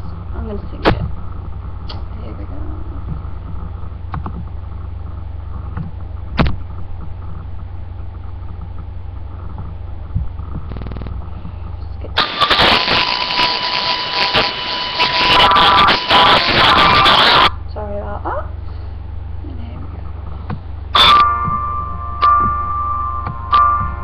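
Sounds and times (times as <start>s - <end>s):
steady low hum: 0.0s - 24.0s
loud backing track music: 21.0s - 24.0s.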